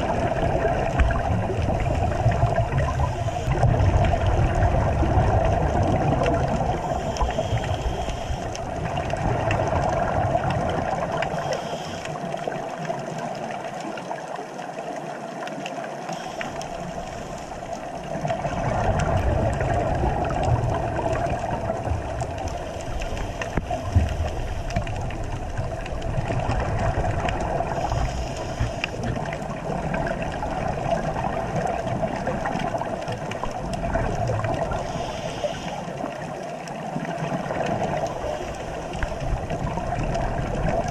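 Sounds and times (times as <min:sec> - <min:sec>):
exhaled scuba bubbles: 0:00.0 - 0:40.9
underwater hiss and hum: 0:00.0 - 0:40.9
faint clicks: 0:06.2 - 0:09.2, 0:09.8 - 0:14.2, 0:15.4 - 0:21.5, 0:22.1 - 0:40.9.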